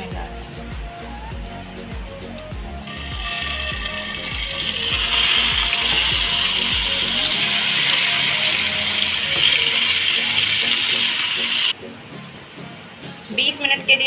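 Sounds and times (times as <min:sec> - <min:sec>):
chicken sizzling in hot oil: 0:02.3 - 0:11.8.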